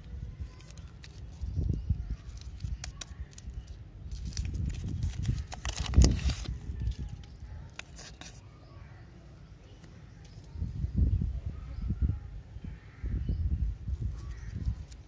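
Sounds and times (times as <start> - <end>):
plastic wrapper crinkling: 0.4 - 8.4.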